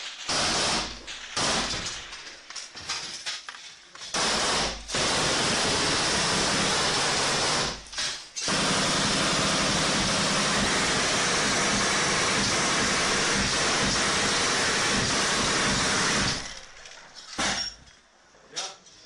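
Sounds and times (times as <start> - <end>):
automatic gunfire: 0.0 - 2.3, 4.2 - 16.7.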